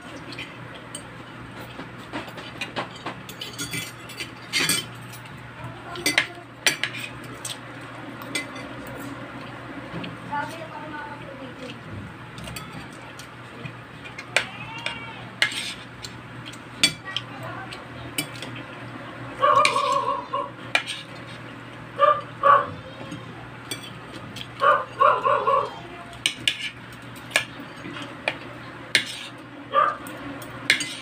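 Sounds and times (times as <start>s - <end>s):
cutlery clinking on ceramic plate: 2.1s - 5.3s, 12.4s - 13.0s, 30.7s - 31.0s.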